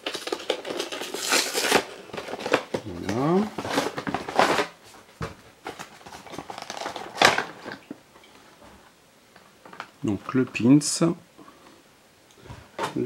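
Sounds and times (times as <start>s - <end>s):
packaging rustling and crinkling: 0.0s - 8.5s.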